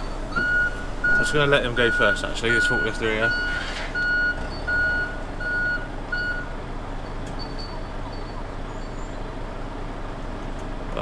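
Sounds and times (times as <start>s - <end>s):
reversing alarm beeping: 0.0s - 6.5s, 7.4s - 9.2s
diesel engine idling: 0.0s - 11.0s.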